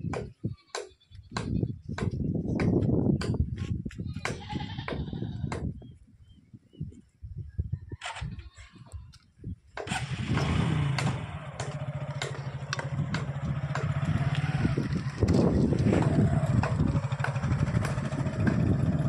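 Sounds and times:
small motorcycle engine running: 0:09.9 - 0:19.0.

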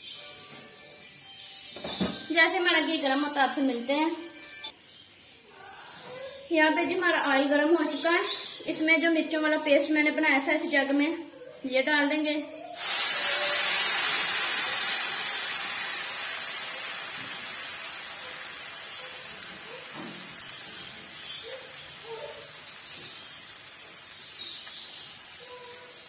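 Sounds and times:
paste sizzling in hot oil: 0:12.8 - 0:26.0.

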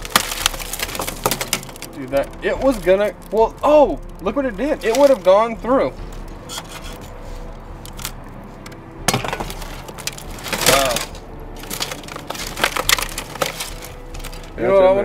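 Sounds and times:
broken laptop pieces clattering: 0:00.0 - 0:03.2, 0:04.8 - 0:05.4, 0:07.8 - 0:14.6.

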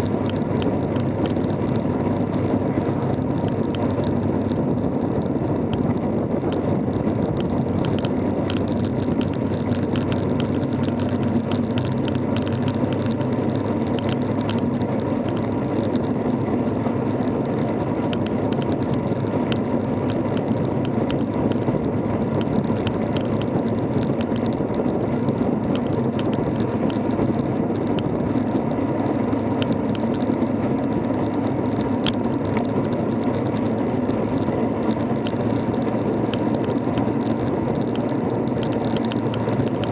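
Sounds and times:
wind and road noise: 0:00.0 - 0:39.9
light ticks: 0:07.3 - 0:16.2, 0:18.0 - 0:21.7, 0:22.4 - 0:28.1, 0:29.5 - 0:39.9.

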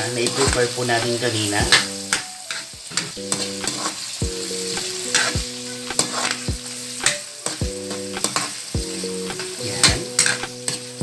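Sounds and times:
food sizzling in oil: 0:00.0 - 0:11.0
metal spatula scraping a wok: 0:05.1 - 0:07.2.

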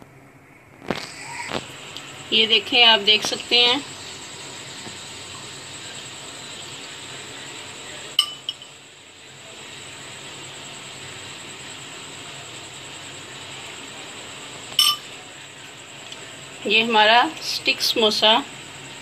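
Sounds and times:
steady background hiss: 0:00.0 - 0:19.0
metal spoon clinking: 0:08.2 - 0:08.7, 0:14.8 - 0:15.1.

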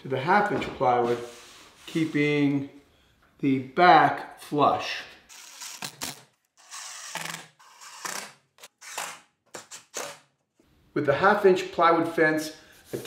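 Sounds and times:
cordless drill driving screws: 0:05.3 - 0:09.2.

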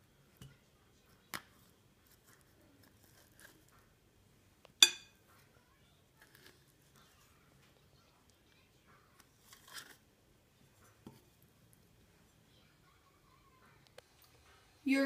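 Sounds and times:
knife clinking: 0:04.8 - 0:05.2.

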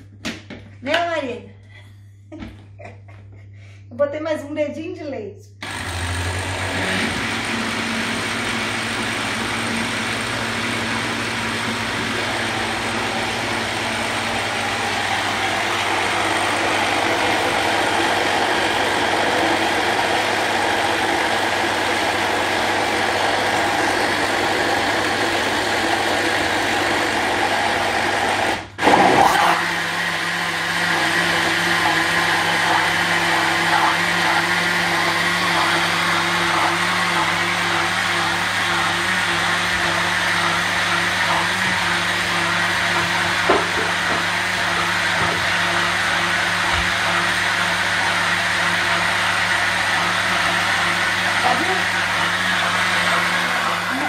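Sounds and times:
blender motor running: 0:05.6 - 0:54.0.

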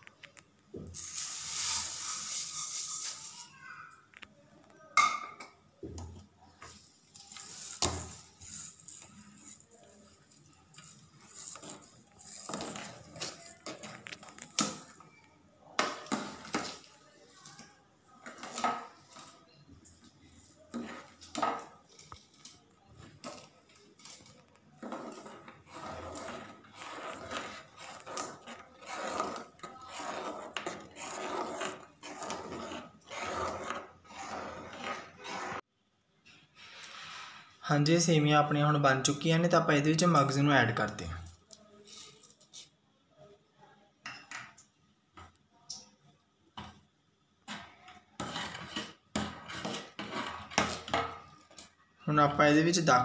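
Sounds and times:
metal ladle scraping a pot: 0:01.0 - 0:03.5, 0:07.2 - 0:15.0, 0:15.8 - 0:17.6, 0:18.2 - 0:35.6, 0:47.5 - 0:51.4.

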